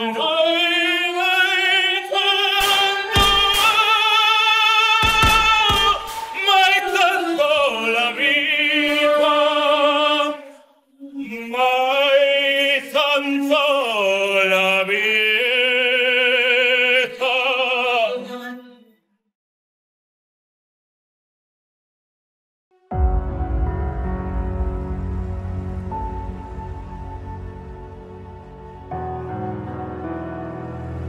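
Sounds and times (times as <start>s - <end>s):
operatic singing over music: 0.0s - 18.4s
gunshots: 2.6s - 4.0s, 5.0s - 6.4s.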